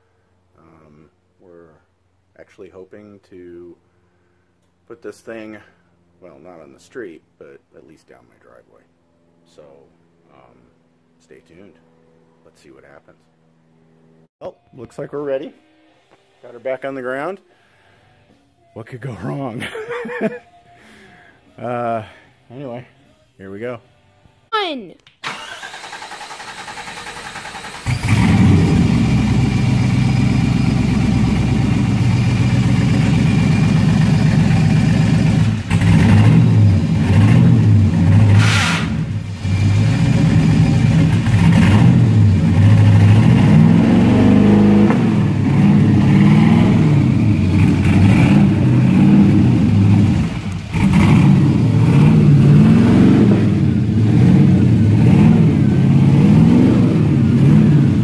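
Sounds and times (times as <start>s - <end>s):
car engine revving: 25.4s - 58.0s.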